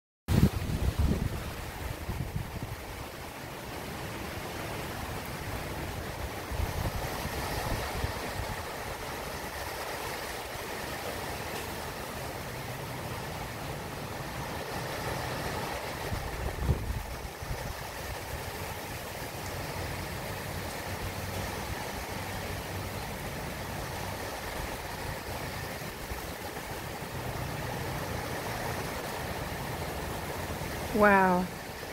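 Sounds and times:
wind buffeting microphone: 0:00.3 - 0:03.1, 0:05.0 - 0:10.2, 0:14.5 - 0:30.7
rain hissing in trees: 0:00.3 - 0:31.9.

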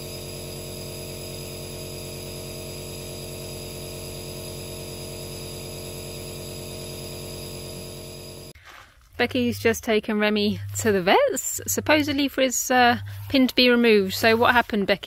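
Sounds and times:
nebulizer buzzing hum: 0:00.0 - 0:08.6.

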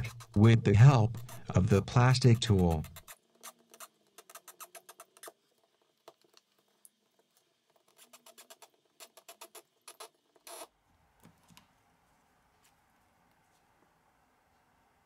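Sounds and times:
plastic tool scraping: 0:00.0 - 0:05.3
small clicks and crackles: 0:02.2 - 0:10.7.

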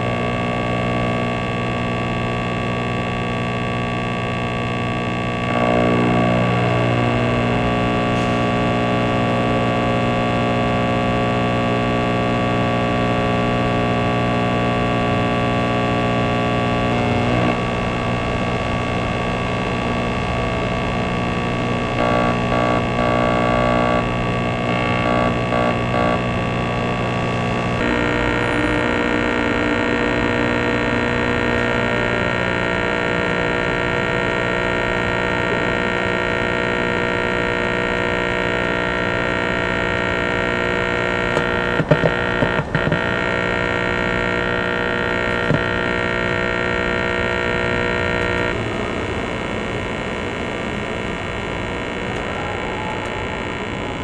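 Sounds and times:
electronic drone through speaker: 0:00.0 - 0:54.0
cluster of clicks: 0:41.3 - 0:43.1.

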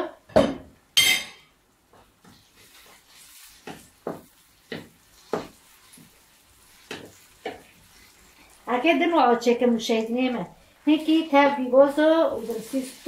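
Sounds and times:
wooden spoon mixing salad: 0:02.2 - 0:08.8, 0:11.9 - 0:13.0.

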